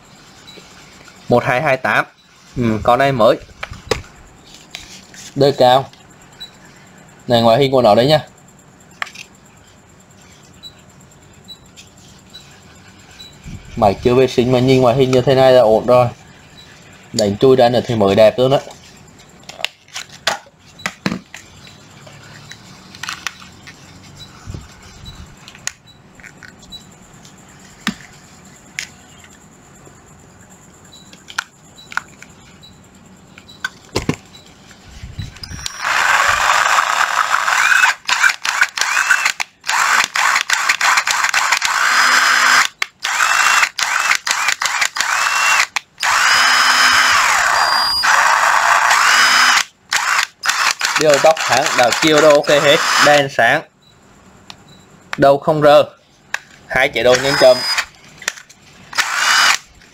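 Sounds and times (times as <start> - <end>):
cordless drill running: 35.5 - 53.2, 57.1 - 57.9, 58.9 - 59.6.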